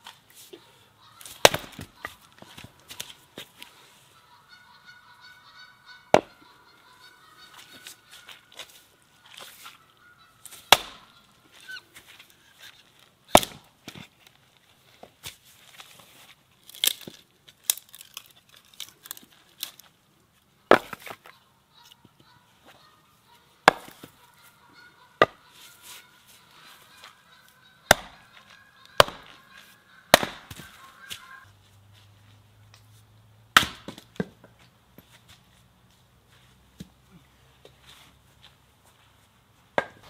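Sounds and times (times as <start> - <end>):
axe splitting firewood: 1.2 - 3.1, 10.6 - 11.8, 13.3 - 14.1, 20.7 - 21.3, 23.6 - 24.2, 25.2 - 25.4, 27.9 - 29.4, 30.1 - 30.7, 33.5 - 34.4.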